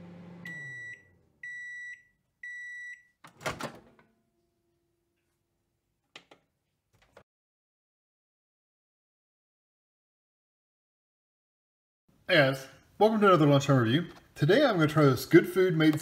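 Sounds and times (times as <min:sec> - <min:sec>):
microwave oven hum: 0:00.0 - 0:01.7.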